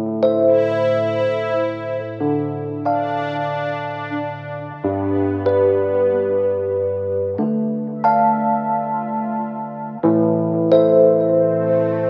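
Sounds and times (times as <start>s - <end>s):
slow sustained chords music: 0.0s - 12.0s.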